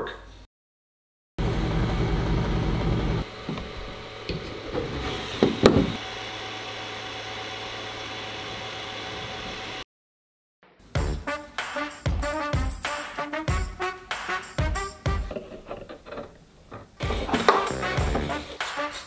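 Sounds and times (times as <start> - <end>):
printer motors and fan whirring: 1.4 - 9.8
knocks: 5.4 - 6.0.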